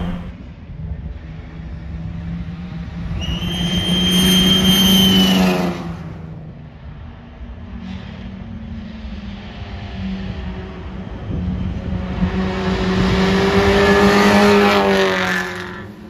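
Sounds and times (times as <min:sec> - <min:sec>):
race car engine passing: 0:00.0 - 0:00.4, 0:11.9 - 0:16.0
high steady whistle: 0:03.2 - 0:05.4.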